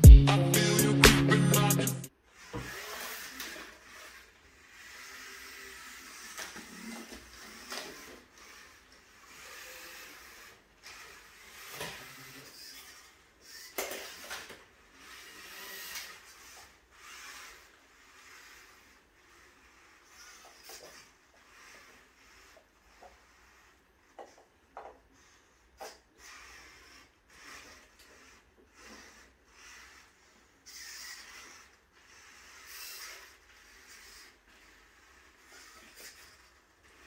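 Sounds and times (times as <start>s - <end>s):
music sting: 0.0s - 2.1s
robot motors whirring: 1.5s - 37.0s.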